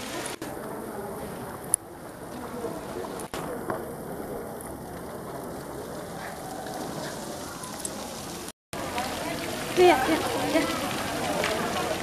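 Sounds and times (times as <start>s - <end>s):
fountain water splashing into pool: 2.7s - 12.0s.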